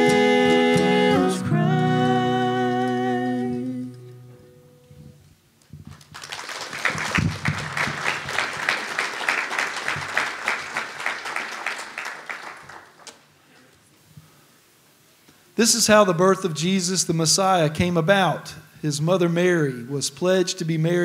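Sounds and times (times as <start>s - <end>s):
singing held chord: 0.0s - 4.8s
mandolin: 0.0s - 5.2s
acoustic guitar: 0.0s - 5.8s
congregation applauding: 5.9s - 13.2s.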